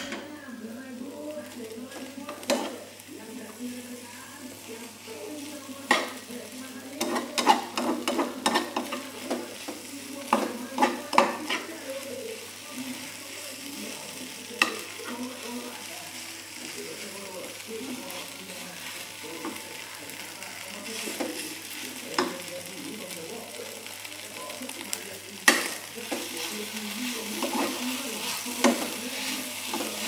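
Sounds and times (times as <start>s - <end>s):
noodles sizzling in a frying pan: 0.0s - 30.0s.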